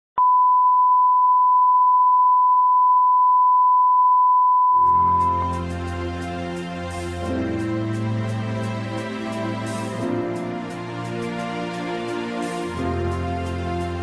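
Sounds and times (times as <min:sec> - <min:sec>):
music with low sustained chords: 0:04.9 - 0:14.0.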